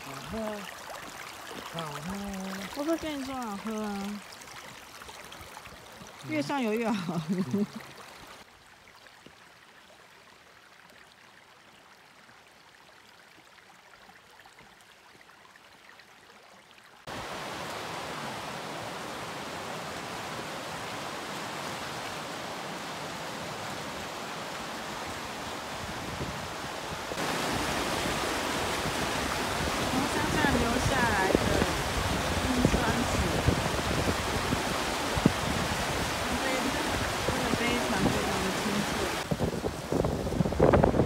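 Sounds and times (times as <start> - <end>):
river rushing over rocks: 17.1 - 41.0.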